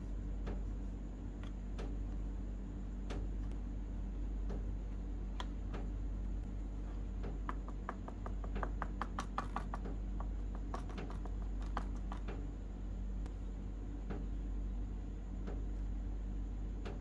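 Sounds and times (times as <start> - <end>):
steady low hum: 0.0 - 17.0
soft knocks of dough rolling: 6.6 - 12.5
fork tines clicking on dough: 7.3 - 12.4.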